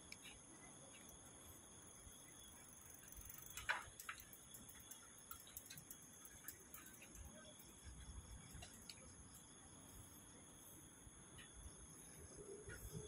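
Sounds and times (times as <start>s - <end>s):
crickets trilling: 0.0s - 13.0s
light ticking: 2.7s - 9.5s.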